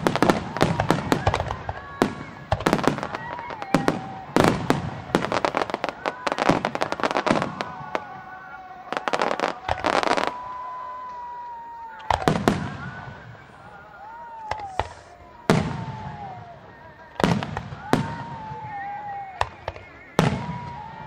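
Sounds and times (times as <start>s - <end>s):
firework crackle: 0.0s - 21.0s
deep firework booms echoing: 14.8s - 16.5s, 17.1s - 18.6s.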